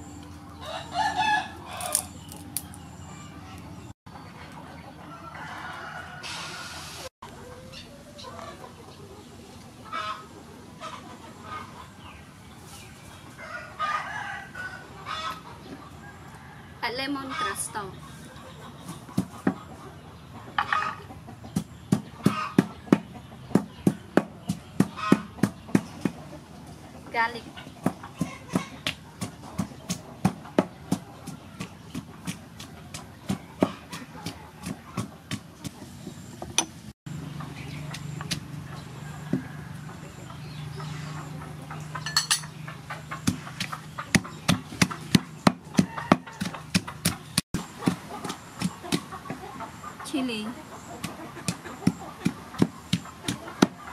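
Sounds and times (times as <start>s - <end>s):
chickens clucking: 0.0s - 53.9s
pestle pounding in wooden mortar: 21.5s - 26.2s, 27.8s - 35.8s, 43.2s - 49.3s, 51.0s - 53.9s.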